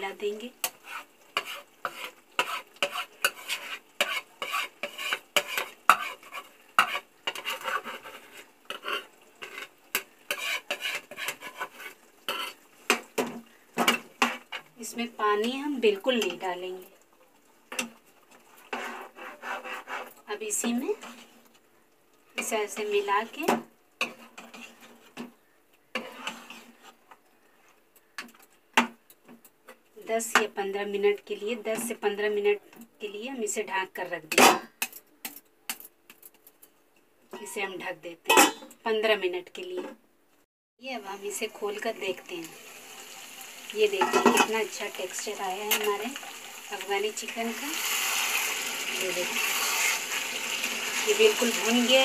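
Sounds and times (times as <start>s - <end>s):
food sizzling in a pan: 0.0s - 21.5s, 22.2s - 27.0s, 40.8s - 52.0s
metal spoon scraping a plate: 0.6s - 9.7s, 10.3s - 12.6s, 26.0s - 27.0s.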